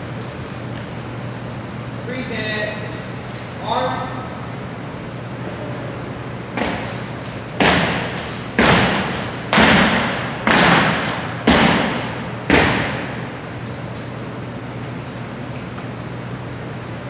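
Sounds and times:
steady low hum: 0:00.0 - 0:17.0
echoing sharp thuds: 0:06.5 - 0:06.9, 0:07.6 - 0:13.3.

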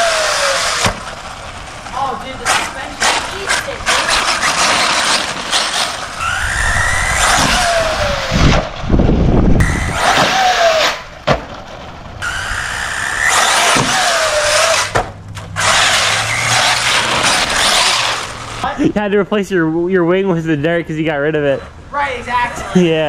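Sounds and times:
electric motor whining: 0:00.0 - 0:01.2, 0:02.4 - 0:09.0, 0:09.6 - 0:11.1, 0:12.2 - 0:18.6.

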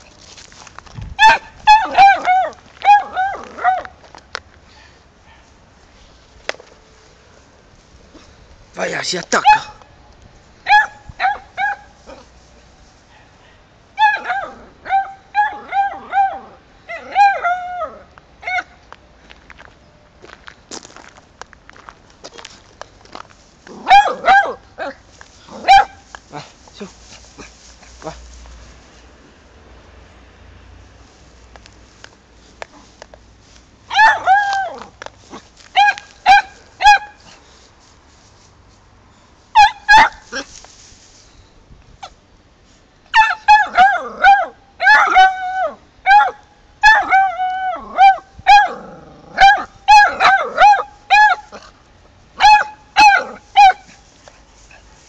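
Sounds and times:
dog barking and baying: 0:01.2 - 0:03.9, 0:09.4 - 0:09.8, 0:10.6 - 0:12.3, 0:13.1 - 0:18.8, 0:23.8 - 0:26.5, 0:33.9 - 0:34.9, 0:35.8 - 0:37.2, 0:39.6 - 0:40.5, 0:43.1 - 0:51.7, 0:52.4 - 0:53.9.

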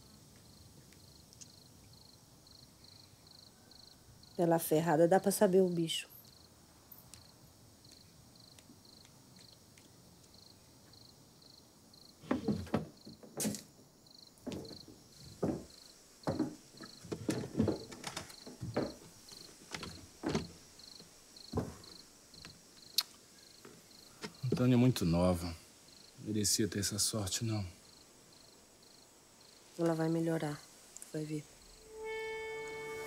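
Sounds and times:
cricket chirping: 0:00.0 - 0:33.0
footsteps on wooden floorboards: 0:12.2 - 0:13.8, 0:14.4 - 0:22.6.

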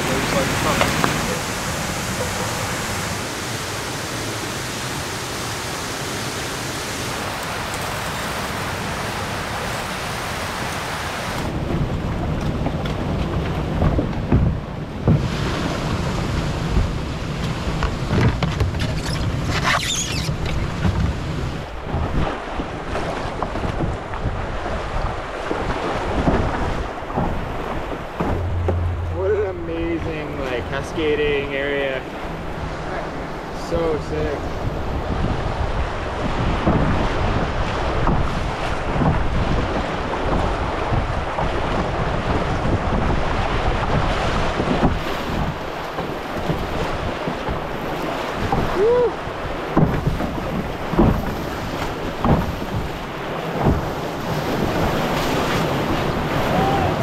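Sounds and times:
wind buffeting microphone: 0:00.0 - 0:04.8, 0:06.0 - 0:57.0
river whitewater rushing: 0:00.0 - 0:11.6, 0:26.8 - 0:36.6, 0:51.4 - 0:57.0
sharp knocks: 0:27.1 - 0:31.5
steady rushing hiss: 0:28.5 - 0:34.7.

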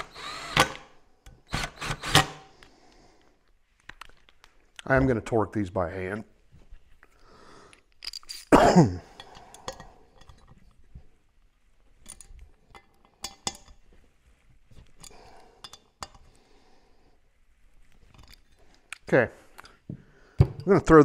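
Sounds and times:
person coughing: 0:08.5 - 0:09.2.

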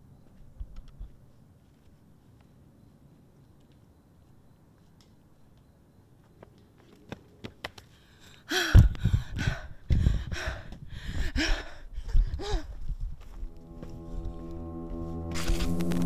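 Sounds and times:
person panting and gasping: 0:07.9 - 0:13.0.

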